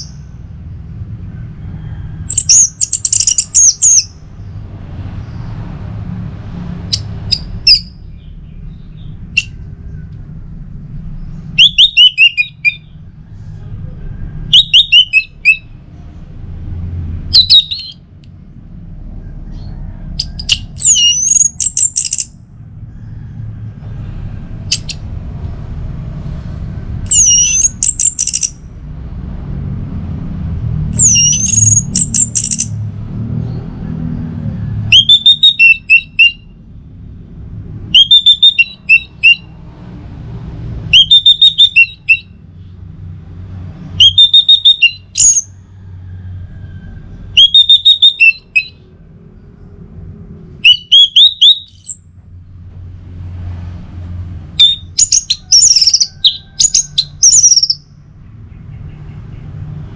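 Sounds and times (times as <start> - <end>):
thrush singing whistled notes: 0.0 - 0.3, 2.2 - 4.6, 6.9 - 9.9, 11.3 - 13.0, 14.4 - 15.9, 17.3 - 18.1, 19.6 - 22.4, 27.0 - 28.7, 30.9 - 32.8, 34.8 - 36.6, 37.9 - 39.6, 40.9 - 42.4, 44.0 - 45.6, 47.3 - 48.8, 50.6 - 52.1, 54.6 - 57.9.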